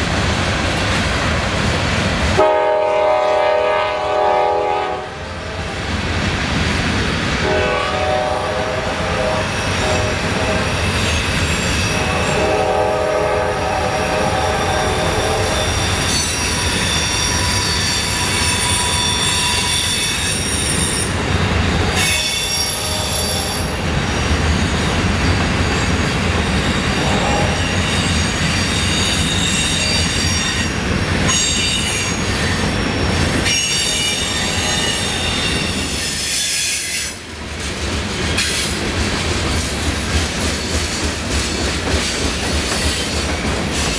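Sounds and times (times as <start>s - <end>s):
wheels rumbling on rail: 0.0s - 43.9s
train horn: 2.4s - 5.8s, 7.4s - 21.1s, 21.9s - 23.8s, 27.0s - 30.7s, 33.4s - 37.2s
high-pitched wheel squeal: 13.6s - 21.2s.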